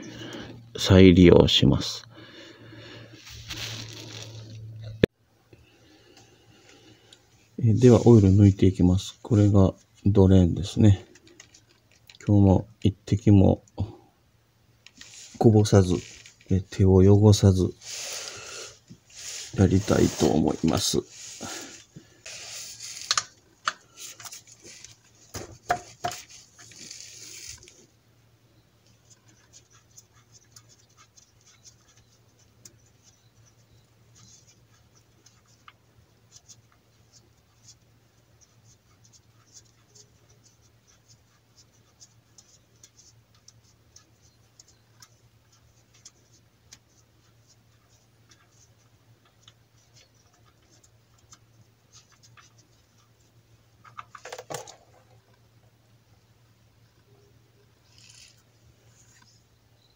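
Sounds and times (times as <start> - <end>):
rustling: 2.8 - 5.1, 14.8 - 16.8, 17.5 - 28.0, 56.8 - 59.5
faint scratching and clicks: 10.9 - 12.3, 14.8 - 16.8, 18.8 - 28.0, 28.8 - 55.8, 56.8 - 59.9.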